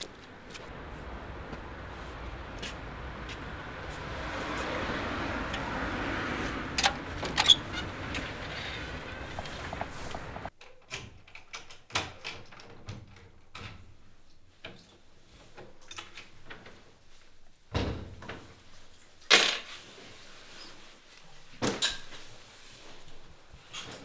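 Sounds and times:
outdoor hum: 0.0s - 10.5s.

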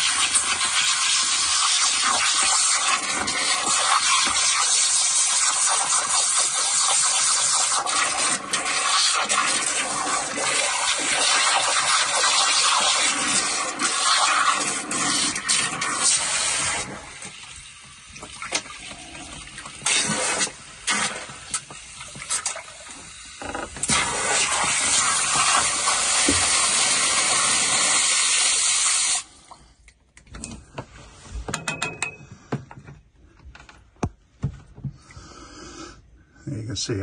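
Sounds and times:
hose water spraying and splashing: 0.0s - 29.5s.

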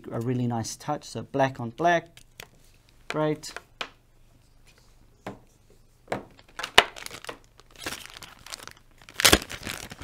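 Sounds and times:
packaging crinkling and rustling: 6.4s - 10.0s.

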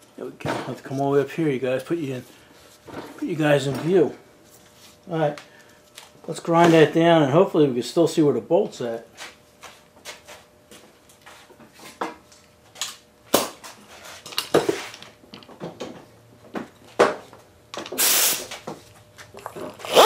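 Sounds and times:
short loud hiss: 18.0s - 18.6s.

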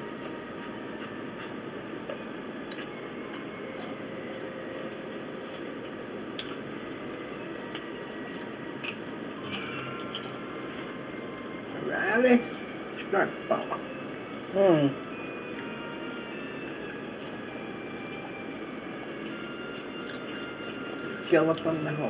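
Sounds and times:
room hum: 0.0s - 22.0s
chips crunching while eating: 19.8s - 21.8s.

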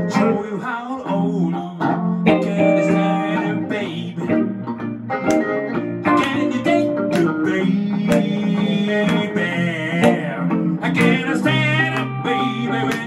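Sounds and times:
blues guitars playing: 0.0s - 13.0s.

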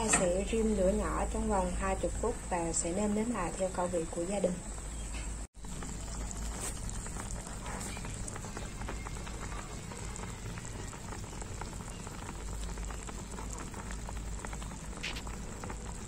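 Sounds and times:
sauce bubbling and popping: 5.6s - 16.0s.

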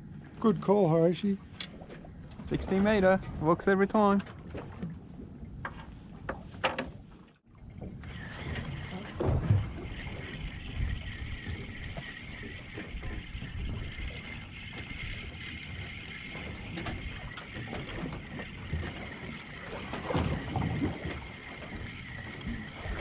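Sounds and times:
wind buffeting microphone: 7.8s - 23.0s.

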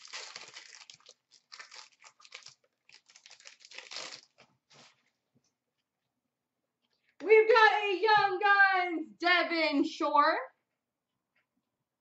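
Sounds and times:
foil wrapper crinkling: 0.0s - 5.1s.

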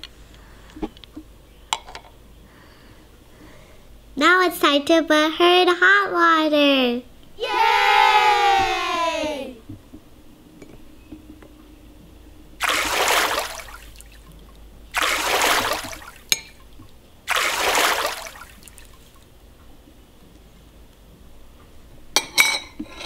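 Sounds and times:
water trickling and splashing: 12.6s - 19.3s
spoon clinking on glass bowl: 16.3s - 16.6s.

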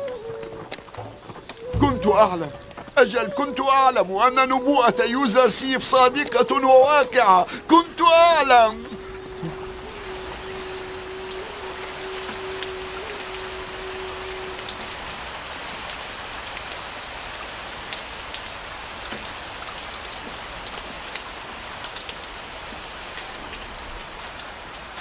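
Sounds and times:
rain splashing on water: 0.0s - 25.0s
steady held tone: 1.7s - 3.0s.

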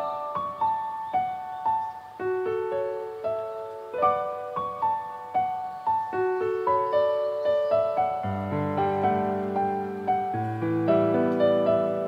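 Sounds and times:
piano melody: 0.0s - 12.0s.

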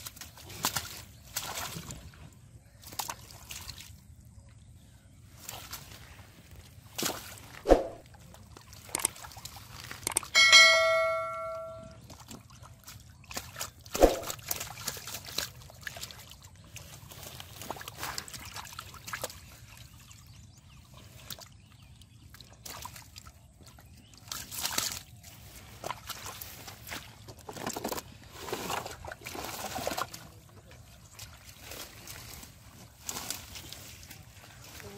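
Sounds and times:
splashing in muddy water: 0.0s - 4.4s, 5.3s - 10.3s, 12.0s - 34.9s
bell-like ding: 10.4s - 12.0s
heavy slaps on water: 13.3s - 14.6s.

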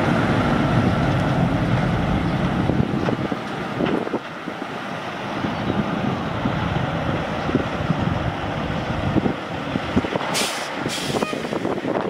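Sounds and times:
diesel truck engine rumbling: 0.0s - 12.0s
air brake hisses: 10.4s - 11.7s.

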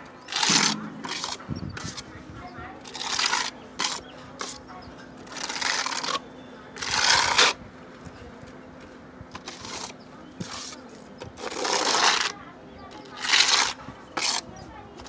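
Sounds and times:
trowel scraping wet wall coating: 0.3s - 2.1s, 2.8s - 4.6s, 5.2s - 6.2s, 6.8s - 7.6s, 9.4s - 12.4s, 13.0s - 15.0s.

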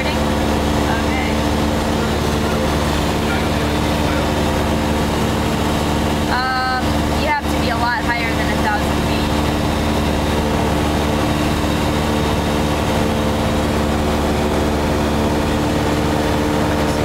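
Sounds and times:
propeller engine droning: 0.0s - 17.0s.

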